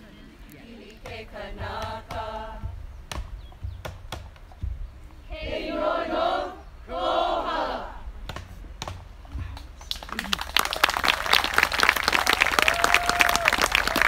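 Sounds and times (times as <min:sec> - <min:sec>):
group chanting in unison: 0:00.6 - 0:02.8, 0:05.2 - 0:08.2.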